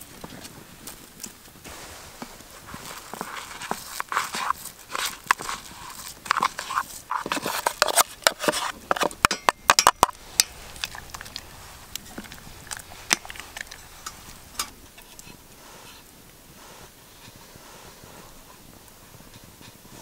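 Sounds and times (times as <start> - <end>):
wooden spoon stirring pot: 1.8 - 16.0
utensil scraping metal pot: 2.6 - 16.0.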